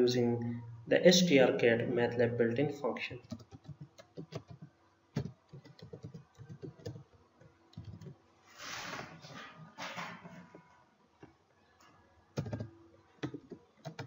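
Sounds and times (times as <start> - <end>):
keyboard typing: 3.2 - 8.2, 12.4 - 14.0.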